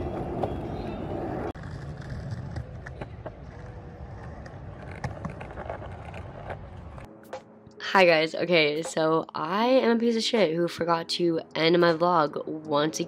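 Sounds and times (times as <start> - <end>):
skateboard wheels rolling on pavement: 0.0 - 7.1.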